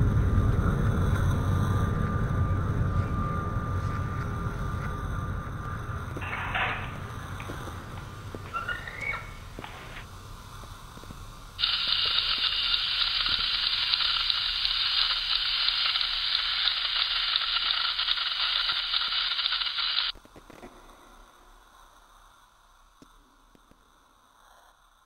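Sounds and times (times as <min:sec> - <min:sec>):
television static hiss: 0:06.2 - 0:20.5.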